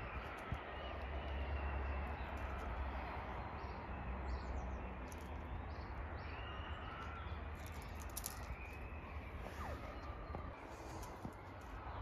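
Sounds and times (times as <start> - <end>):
outdoor background rumble: 0.0 - 12.0
faint bird chirps: 4.4 - 12.0.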